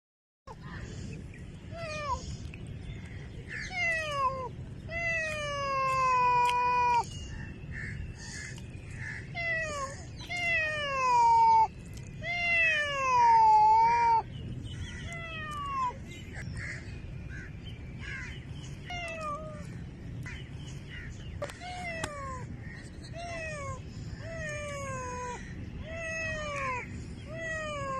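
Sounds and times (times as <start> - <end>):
cat meowing: 3.5 - 7.0, 9.3 - 14.3, 15.0 - 16.0, 18.8 - 19.7, 23.1 - 27.9.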